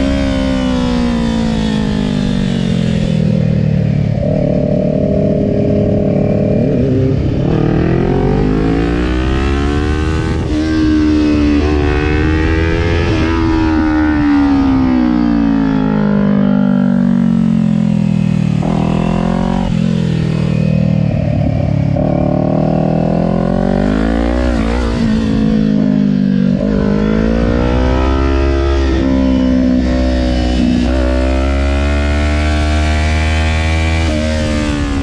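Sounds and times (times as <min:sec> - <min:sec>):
wind rumble: 0:00.0 - 0:31.9
motorcycle engine revving: 0:00.0 - 0:35.0.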